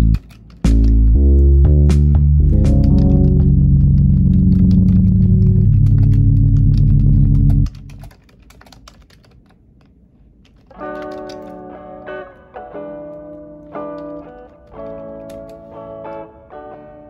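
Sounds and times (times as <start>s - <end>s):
typing on computer keyboard: 0.0s - 1.0s, 2.7s - 11.6s, 13.8s - 15.6s
background music with low notes: 0.0s - 8.0s.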